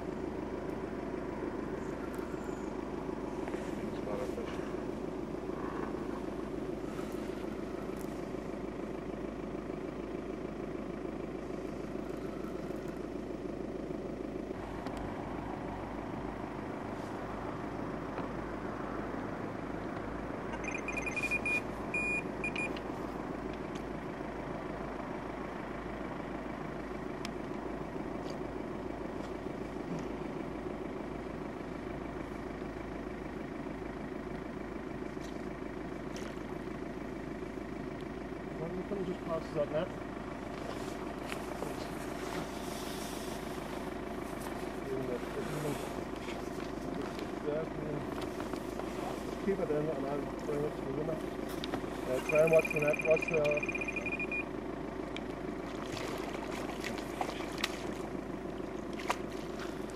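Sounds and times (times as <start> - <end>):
steady low rumble: 0.0 - 59.9
high electronic bite alarm beeps: 20.5 - 22.8, 52.2 - 54.5.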